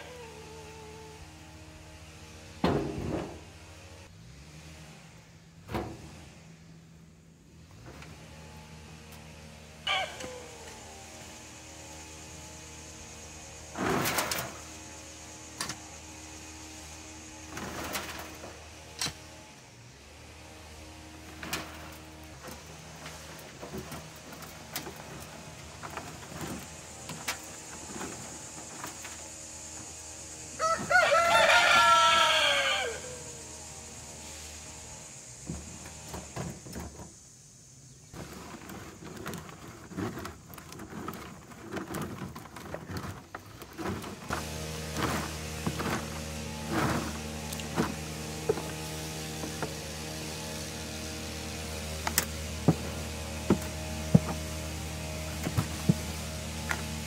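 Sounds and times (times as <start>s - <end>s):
compost scraped over wire mesh: 7.8s - 19.5s, 20.1s - 37.2s, 38.0s - 57.0s
steady machine hum: 8.2s - 57.0s
pitchfork scraping and knocking: 38.1s - 49.8s.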